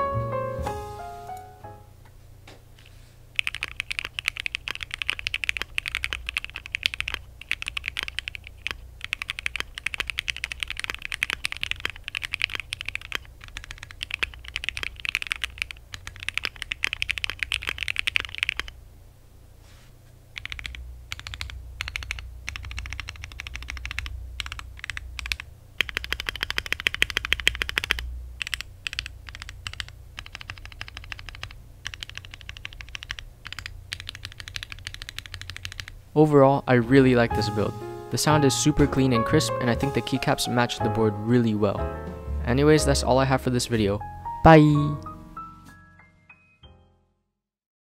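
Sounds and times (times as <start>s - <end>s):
crisp keyboard keystrokes: 3.4s - 18.8s, 20.4s - 36.0s.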